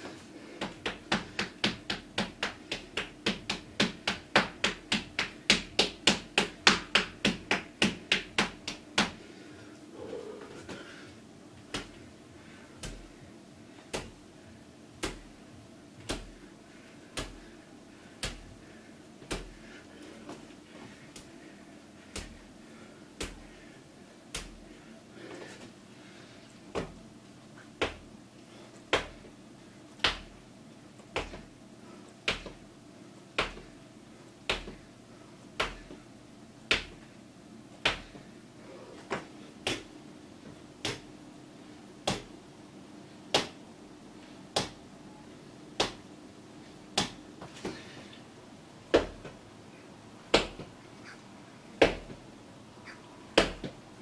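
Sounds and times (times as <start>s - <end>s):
hand slapping body: 0.6s - 9.2s, 11.6s - 12.0s, 12.8s - 13.2s, 13.9s - 14.2s, 14.9s - 15.4s, 16.0s - 16.4s, 17.1s - 17.5s, 18.1s - 18.6s, 19.2s - 19.7s, 20.3s - 22.5s, 23.2s - 23.6s, 24.3s - 24.6s, 26.7s - 27.0s, 27.8s - 28.1s, 28.9s - 29.3s, 30.0s - 30.4s, 31.0s - 31.5s, 32.2s - 32.6s, 33.4s - 33.7s, 34.4s - 34.9s, 35.6s - 36.0s, 36.7s - 37.0s, 37.8s - 38.3s, 39.0s - 39.9s, 40.8s - 41.1s, 42.0s - 42.4s, 43.3s - 43.6s, 44.5s - 44.8s, 45.8s - 46.1s, 46.9s - 47.8s, 48.9s - 49.4s, 50.3s - 50.8s, 51.8s - 52.2s, 53.4s - 53.8s.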